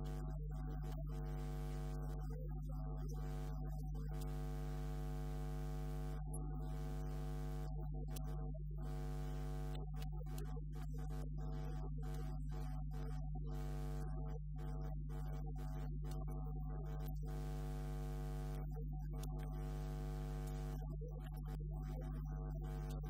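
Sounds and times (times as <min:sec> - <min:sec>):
electrical mains hum: 0:00.0 - 0:00.2, 0:19.6 - 0:20.8.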